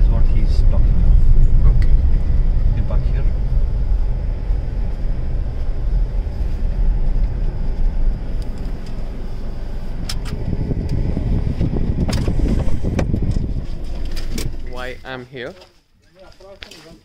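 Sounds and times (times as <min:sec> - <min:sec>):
car rumbling on dirt road: 0:00.0 - 0:15.2.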